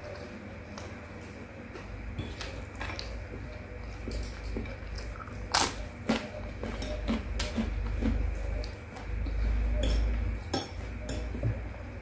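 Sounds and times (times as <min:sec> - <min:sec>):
chewing noodles: 0:02.9 - 0:09.7.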